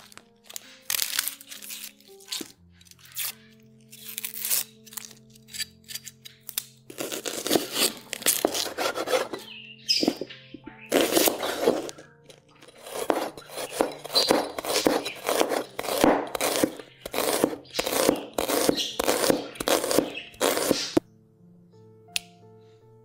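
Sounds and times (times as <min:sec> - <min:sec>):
knife slicing on cutting board: 0:06.9 - 0:09.4, 0:10.9 - 0:12.0, 0:12.6 - 0:21.0.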